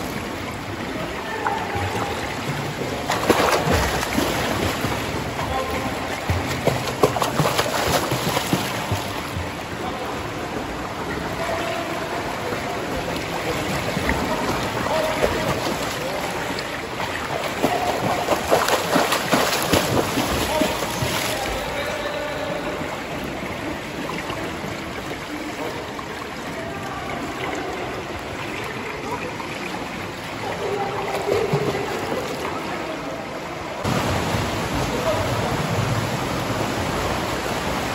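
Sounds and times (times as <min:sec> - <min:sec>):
swimmer splashing in pool: 0:01.5 - 0:09.5, 0:11.2 - 0:23.2, 0:30.6 - 0:32.8.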